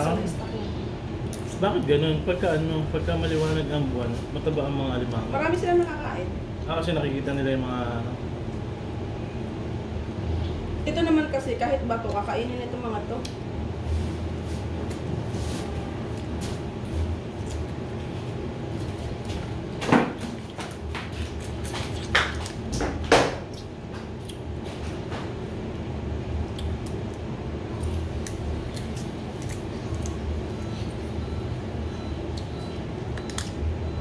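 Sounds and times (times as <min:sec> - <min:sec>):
crab shells clicking and snapping: 0:26.5 - 0:30.2, 0:33.1 - 0:33.6.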